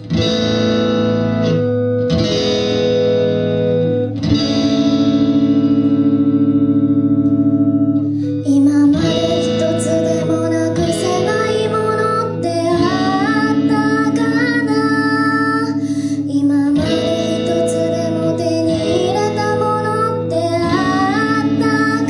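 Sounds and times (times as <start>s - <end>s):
electric guitar ringing chords: 0.0s - 22.0s
woman singing: 8.2s - 22.0s.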